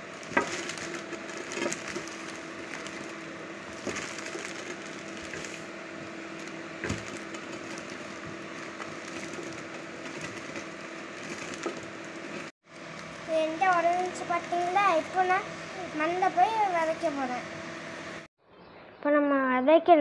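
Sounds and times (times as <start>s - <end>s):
plastic bag crinkling: 0.0s - 5.7s, 6.3s - 14.8s
seeds crackling under rolling pin: 0.0s - 5.7s, 6.3s - 15.2s.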